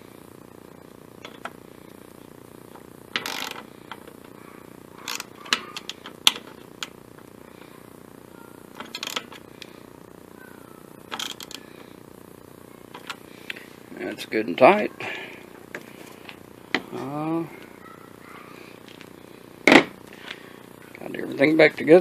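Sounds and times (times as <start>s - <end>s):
faint low hum: 0.0s - 22.0s
socket wrench ratchet clicking: 3.2s - 4.1s, 8.8s - 9.4s, 11.1s - 11.6s.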